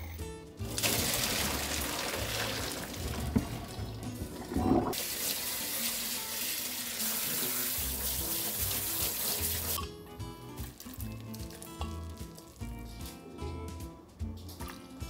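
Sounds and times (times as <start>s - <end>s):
faucet spray on vegetables: 5.0s - 9.8s.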